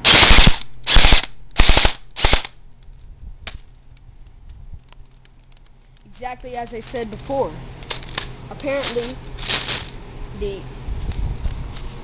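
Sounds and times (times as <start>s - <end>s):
airsoft gun automatic fire: 0.0s - 2.5s.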